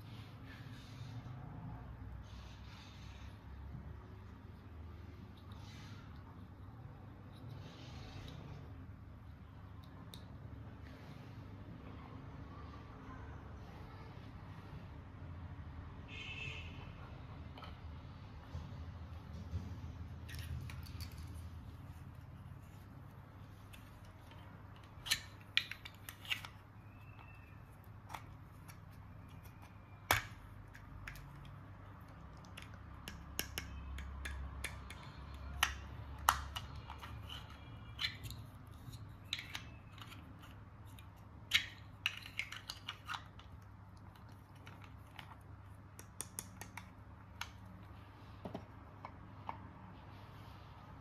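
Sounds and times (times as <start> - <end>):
small plastic pieces clicking: 23.7 - 47.6.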